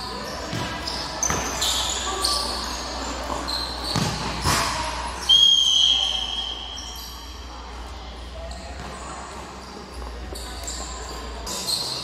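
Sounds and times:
shoes squeaking on court: 0:00.0 - 0:05.3, 0:06.0 - 0:12.0
ball kicked and bouncing: 0:00.5 - 0:01.5, 0:03.9 - 0:04.7.

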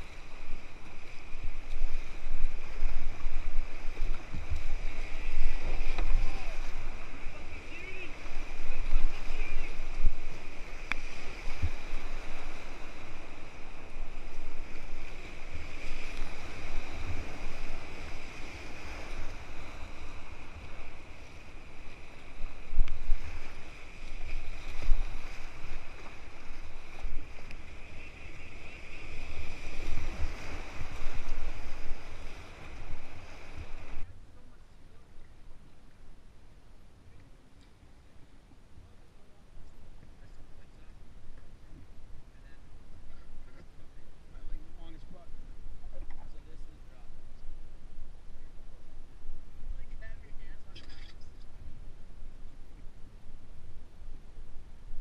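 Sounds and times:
calm water: 0:00.0 - 0:55.0
whitewater rapids rushing: 0:04.8 - 0:10.3.

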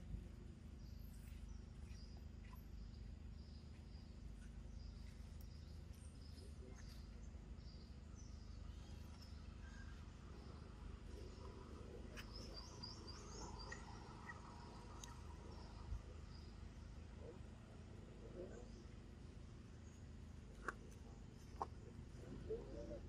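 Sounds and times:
steady low hum: 0:00.0 - 0:23.0
faint high chirps: 0:00.9 - 0:16.6.

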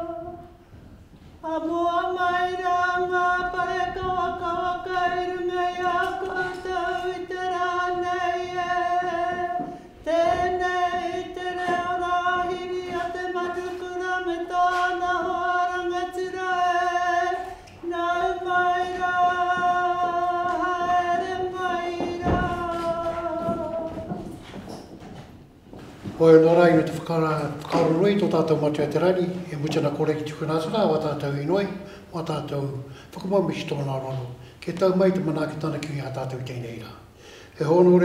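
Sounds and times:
person chanting long held notes: 0:01.4 - 0:24.6.

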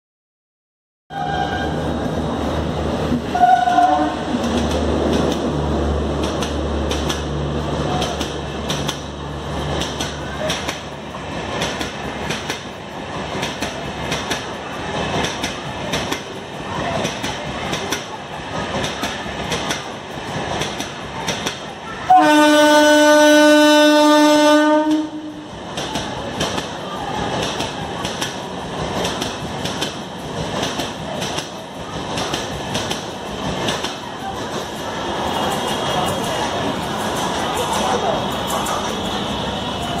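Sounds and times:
train horn: 0:01.1 - 0:01.8, 0:03.3 - 0:04.3, 0:22.0 - 0:25.5
electric locomotive humming: 0:01.1 - 0:40.0
train wheels clattering over rail joints: 0:04.3 - 0:21.8, 0:25.6 - 0:39.3.

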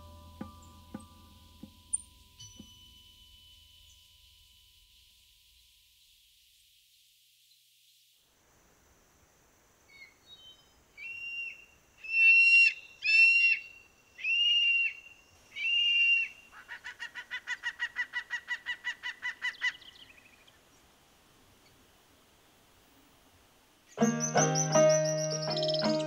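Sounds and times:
bird calls: 0:11.0 - 0:20.8, 0:23.9 - 0:26.0.

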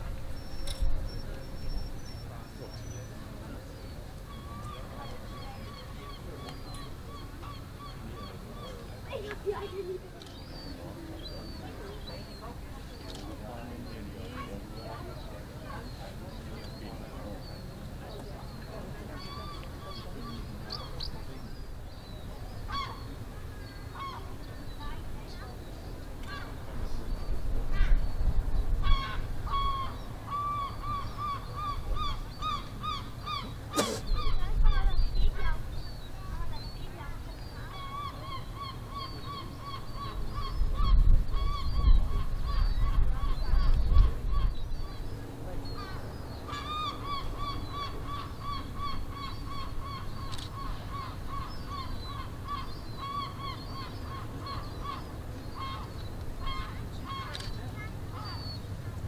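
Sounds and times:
birds calling: 0:00.0 - 0:58.8
wind rumbling on microphone: 0:26.0 - 0:33.4, 0:34.0 - 0:36.6, 0:39.6 - 0:46.2
gull calling: 0:28.8 - 0:34.8, 0:45.8 - 0:57.5.

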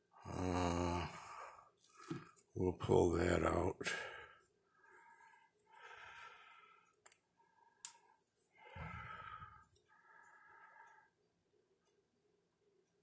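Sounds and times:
soft breath: 0:03.8 - 0:11.3.

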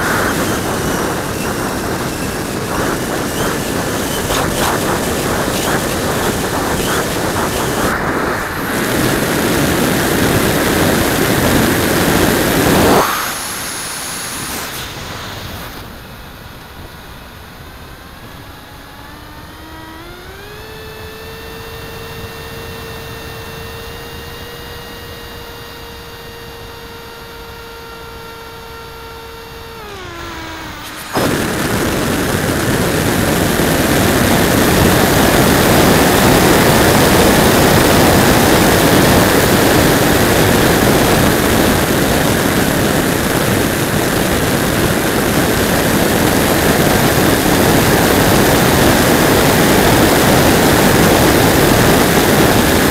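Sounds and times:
loud wind noise on microphone: 0:00.0 - 0:16.9, 0:29.7 - 0:52.9
electric motor and propeller whining: 0:00.0 - 0:52.9.

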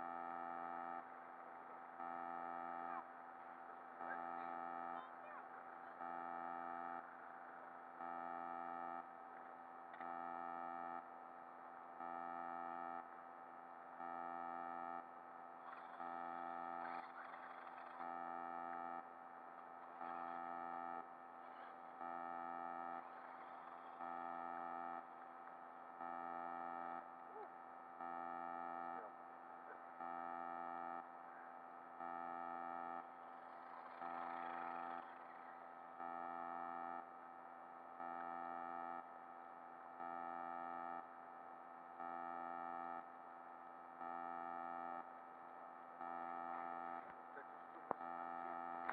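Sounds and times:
pulsing electronic tone: 0:09.8 - 0:48.9.

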